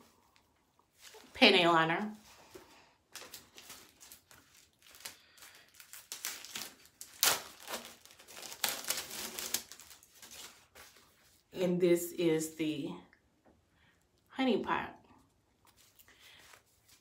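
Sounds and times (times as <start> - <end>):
plastic wrapper crinkling: 3.1 - 11.2.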